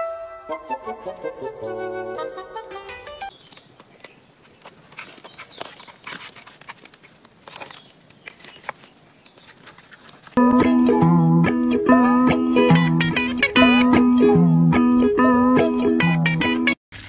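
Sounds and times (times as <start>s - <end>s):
twigs rustling and cracking: 3.3s - 10.4s.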